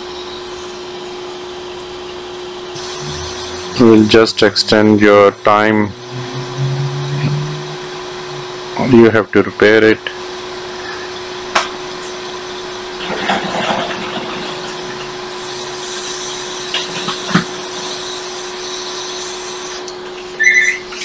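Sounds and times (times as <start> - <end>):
hot-air station blowing: 2.5 - 21.0.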